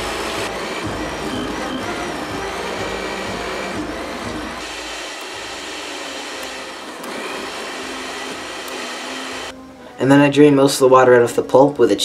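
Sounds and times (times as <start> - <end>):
blender churning pulp: 0.0 - 9.5.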